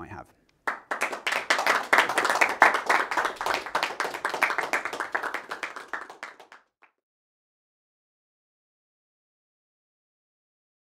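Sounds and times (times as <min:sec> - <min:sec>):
audience applauding: 0:00.7 - 0:06.9.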